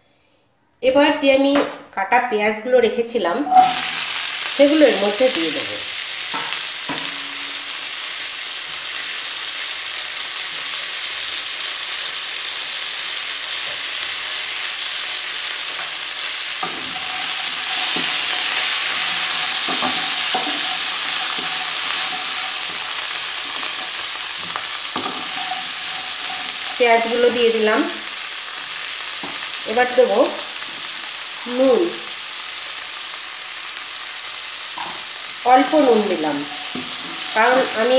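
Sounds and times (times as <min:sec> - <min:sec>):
onions sizzling in oil: 0:03.4 - 0:37.9
wooden spatula knocking pan: 0:19.1 - 0:22.9.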